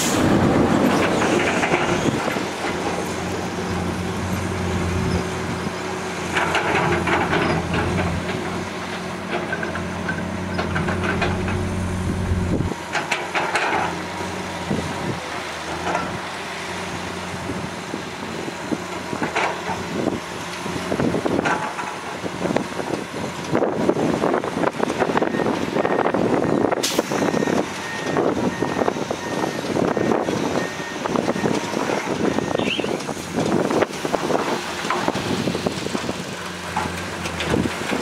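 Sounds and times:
truck engine droning: 0.0s - 21.4s.

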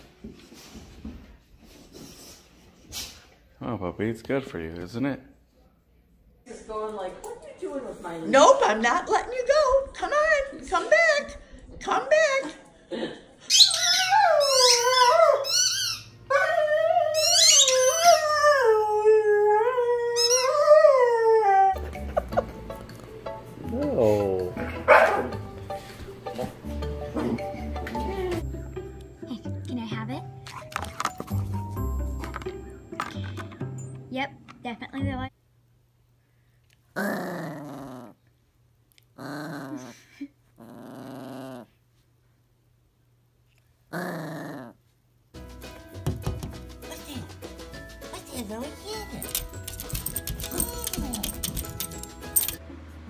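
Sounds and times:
small dog growling: 37.0s - 38.2s, 39.2s - 41.8s, 43.9s - 44.8s.

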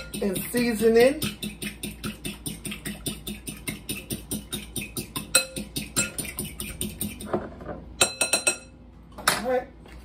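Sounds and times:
whisk clicking in glass bowl: 0.0s - 7.2s.

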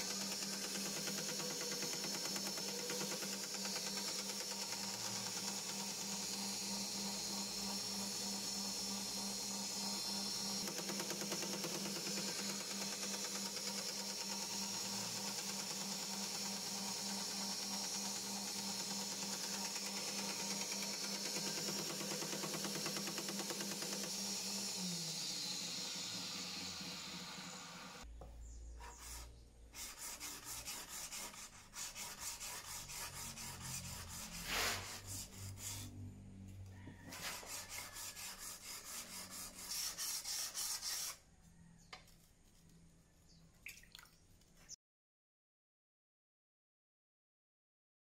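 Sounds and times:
power tool motor humming: 0.0s - 28.1s, 30.0s - 36.2s.

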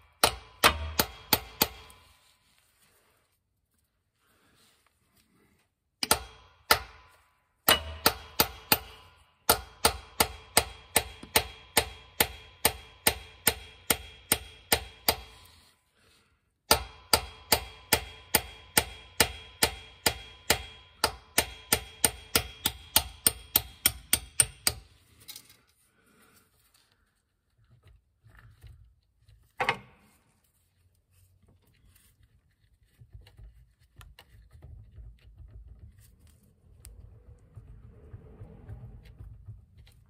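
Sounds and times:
hammer striking metal punch: 0.0s - 2.0s, 6.0s - 15.5s, 16.7s - 24.9s.

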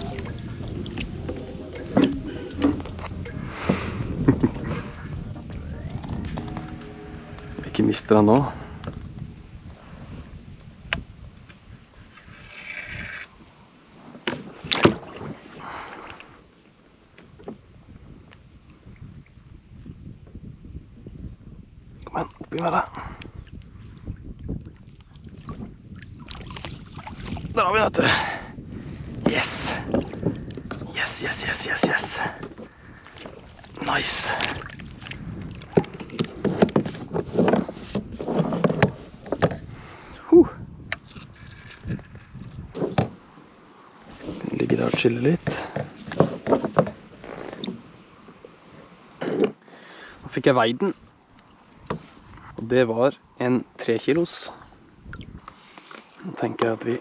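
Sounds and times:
water splashing: 0.0s - 8.8s, 14.3s - 16.2s, 24.7s - 27.6s, 31.1s - 37.0s
fish splashing and thrashing: 31.8s - 39.9s.

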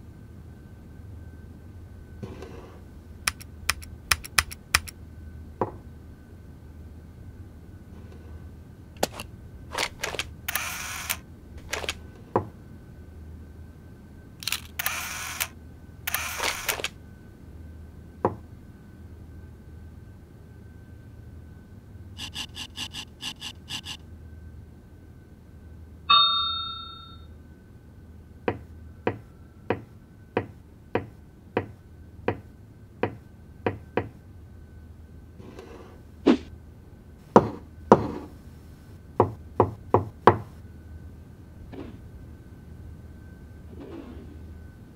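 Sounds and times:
faint steady hum: 0.0s - 44.9s
sharp ticks: 3.3s - 4.9s
bright ringing ping: 26.1s - 27.4s.

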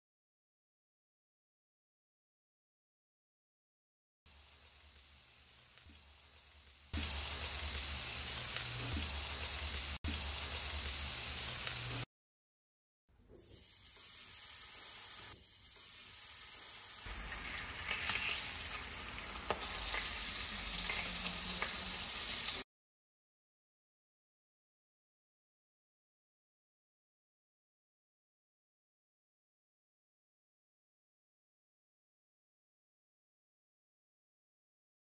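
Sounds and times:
bacon sizzling: 4.3s - 12.1s, 13.4s - 22.6s.

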